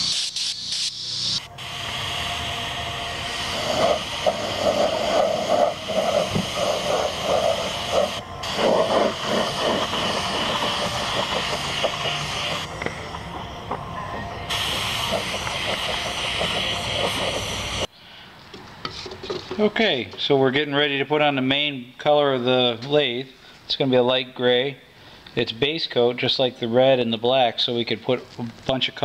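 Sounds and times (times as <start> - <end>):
paint spray gun hissing: 0.0 - 12.9, 14.5 - 17.9
pulsing mid-pitched sound: 0.0 - 17.9.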